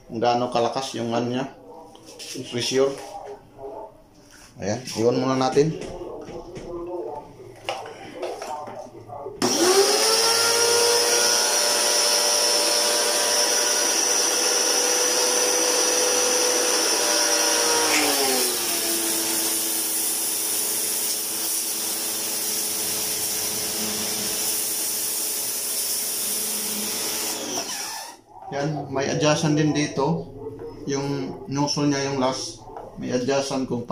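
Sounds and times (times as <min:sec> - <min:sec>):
pressure washer whine: 0:09.4 - 0:28.2.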